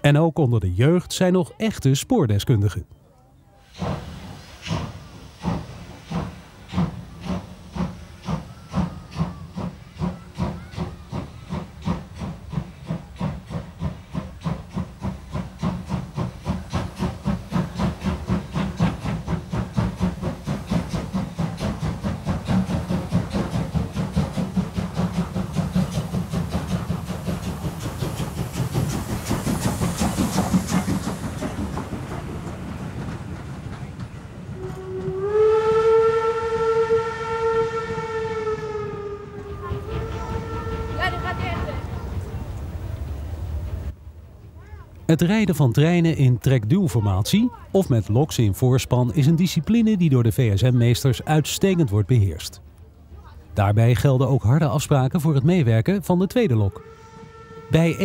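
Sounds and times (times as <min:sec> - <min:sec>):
steam locomotive exhaust beats: 0:03.6 - 0:44.0, 0:54.4 - 0:58.0
steam whistle: 0:34.5 - 0:41.6, 0:56.7 - 0:58.0.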